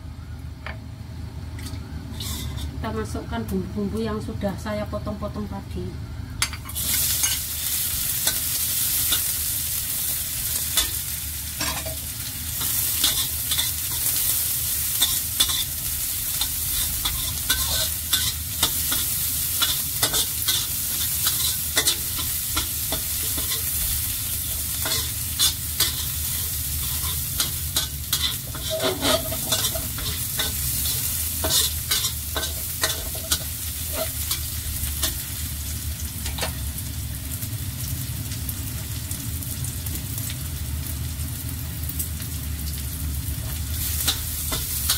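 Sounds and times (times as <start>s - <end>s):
metal spatula scraping wok: 2.1s - 2.8s, 6.4s - 9.4s, 10.4s - 12.0s, 12.6s - 35.3s
food sizzling in hot oil: 2.1s - 3.2s, 6.4s - 44.9s.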